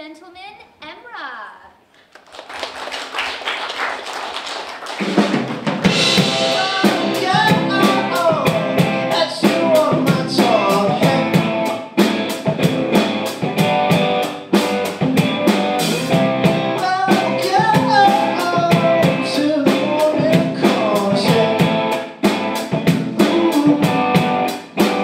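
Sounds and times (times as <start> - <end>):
live rock band playing: 4.9 - 25.0
lead voice singing: 5.9 - 11.8, 16.7 - 22.1, 22.9 - 24.6.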